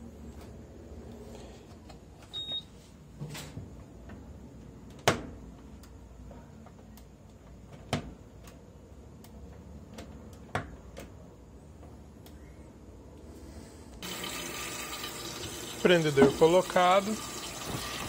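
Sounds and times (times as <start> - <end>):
washing machine electronic beep: 2.3 - 2.8.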